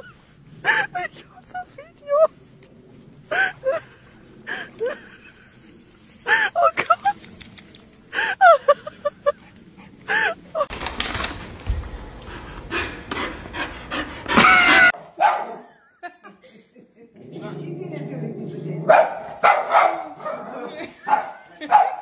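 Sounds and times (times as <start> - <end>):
dog whining and yipping: 14.3 - 15.0.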